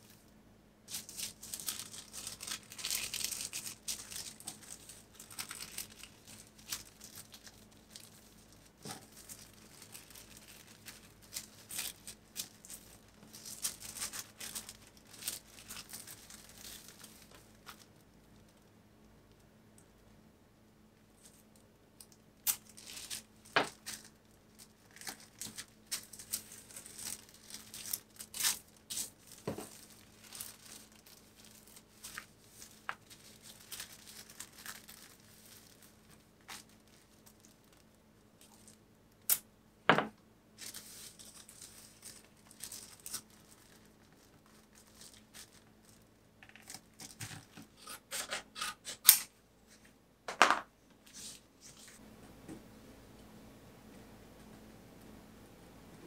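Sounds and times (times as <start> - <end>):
paper envelope rustling: 22.7 - 37.8.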